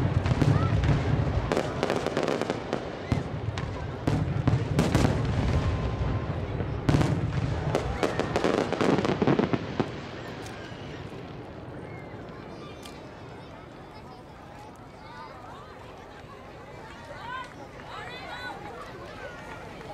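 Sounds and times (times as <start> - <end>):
firework booms: 0.0 - 11.4
firework crackling: 0.0 - 12.5.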